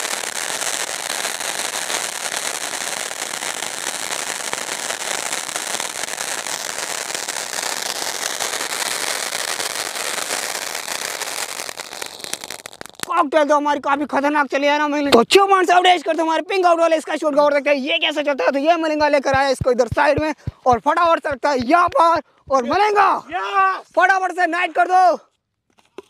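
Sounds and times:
firework fountain hissing and crackling: 0:00.0 - 0:13.6.

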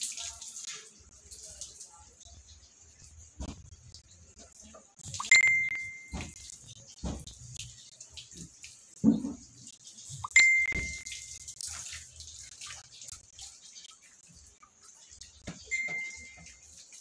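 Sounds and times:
water splashing and dripping: 0:00.0 - 0:17.0
bright ringing chime: 0:05.3 - 0:06.3, 0:10.3 - 0:11.3, 0:15.7 - 0:16.5.

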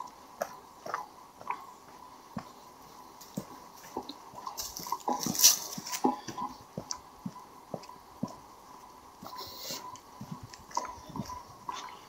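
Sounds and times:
footsteps walking: 0:00.0 - 0:12.0
rustle: 0:03.2 - 0:06.2.

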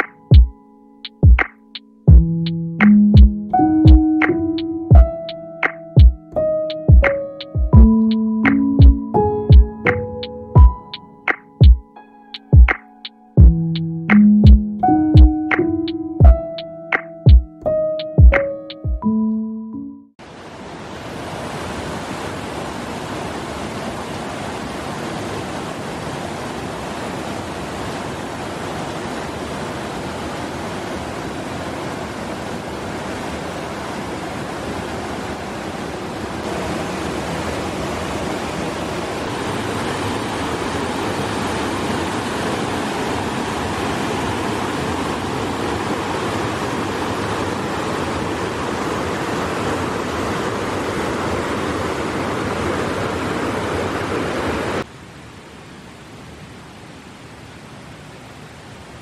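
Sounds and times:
water rushing over boulders: 0:20.2 - 0:59.0.

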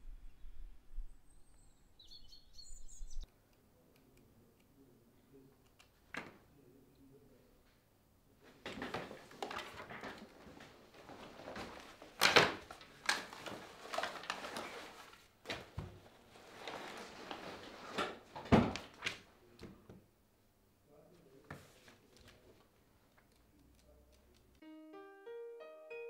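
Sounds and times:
rummaging through objects: 0:08.5 - 0:19.0.

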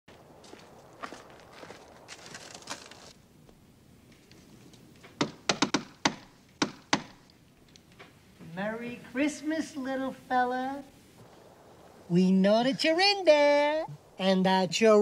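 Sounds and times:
faint footsteps: 0:00.1 - 0:05.4.

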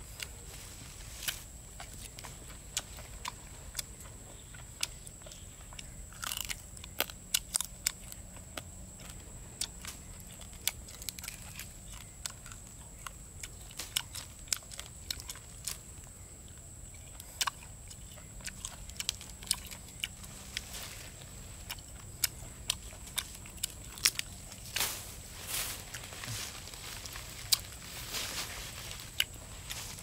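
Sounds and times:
person chewing and biting: 0:01.2 - 0:15.8, 0:17.0 - 0:24.8, 0:27.0 - 0:27.9, 0:29.1 - 0:29.8.

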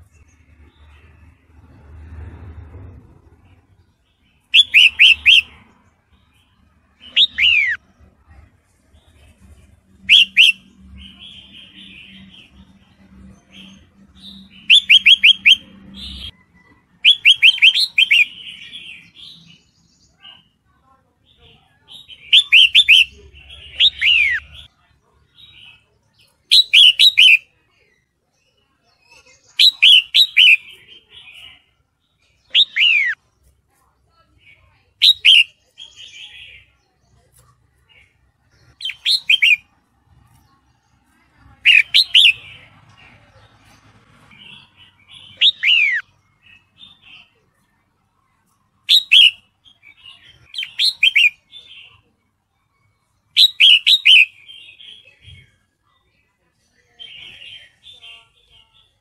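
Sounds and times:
bird chattering and whistling: 0:04.4 - 0:05.7, 0:07.0 - 0:07.8, 0:10.0 - 0:12.6, 0:13.5 - 0:16.4, 0:17.0 - 0:19.4, 0:21.9 - 0:24.7, 0:26.5 - 0:27.5, 0:29.1 - 0:31.7, 0:32.4 - 0:33.2, 0:35.0 - 0:36.7, 0:37.9 - 0:39.7, 0:41.6 - 0:42.7, 0:44.3 - 0:47.3, 0:48.8 - 0:52.0, 0:53.3 - 0:55.4.

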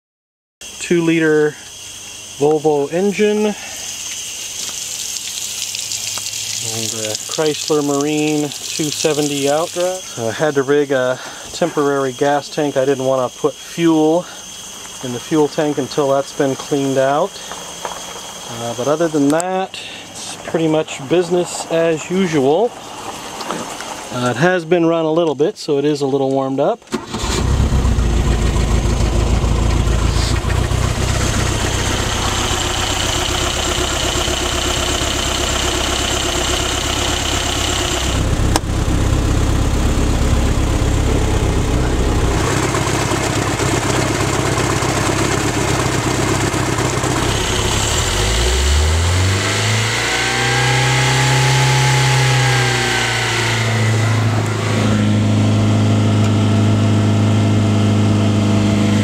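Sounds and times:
marine engine idling and revving: 0:27.4 - 0:59.0.

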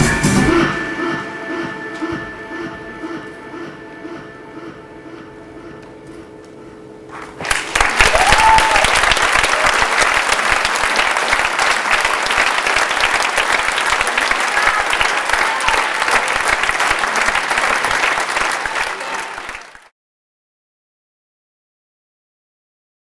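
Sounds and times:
audience applauding: 0:07.1 - 0:19.9.

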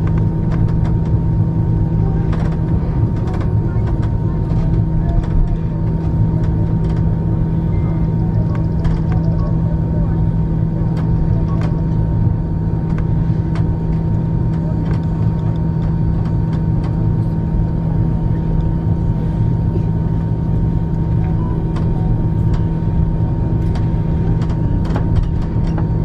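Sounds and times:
cabin ticks and rattles: 0:00.0 - 0:01.4, 0:02.1 - 0:07.3, 0:08.1 - 0:09.6, 0:23.5 - 0:26.0
jet engines droning: 0:00.0 - 0:26.0.

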